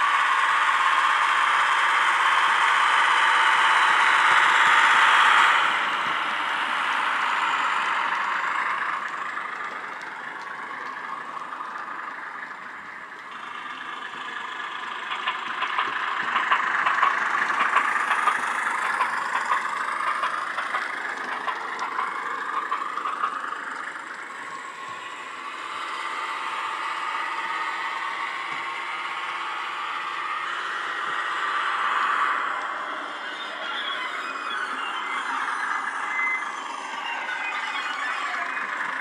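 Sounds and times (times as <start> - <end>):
model wheels clicking on track: 0.0 - 26.2
model locomotive engine sound: 0.0 - 39.0.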